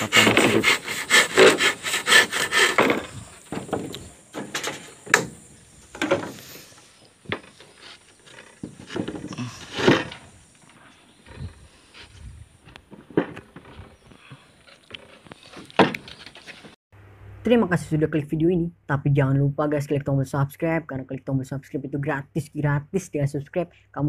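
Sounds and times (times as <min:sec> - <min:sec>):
handsaw cutting wood: 0:00.0 - 0:03.3
wooden boards knocking and scraping: 0:00.0 - 0:06.5, 0:07.2 - 0:10.4, 0:11.3 - 0:16.8.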